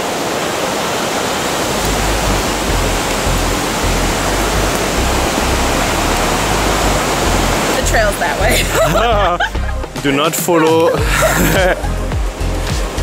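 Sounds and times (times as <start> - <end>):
creek and waterfall rushing: 0.0 - 13.0
low uneven rumbling: 1.4 - 10.2.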